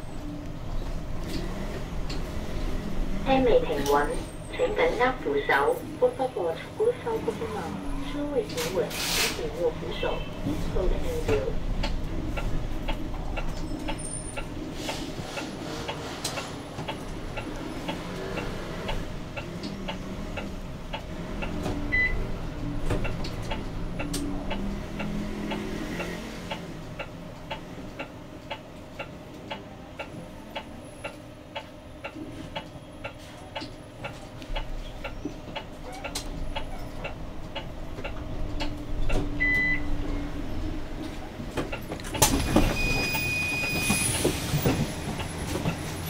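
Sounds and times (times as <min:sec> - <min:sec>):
bus cabin hum and rumble: 0:00.0 - 0:46.0
short beep: 0:42.4 - 0:44.2.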